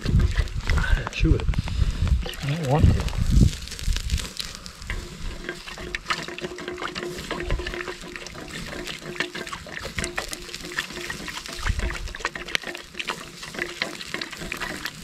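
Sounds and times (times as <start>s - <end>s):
wood fire crackling: 0.0s - 15.0s
water sloshing in kettle: 2.2s - 3.1s, 4.8s - 15.0s.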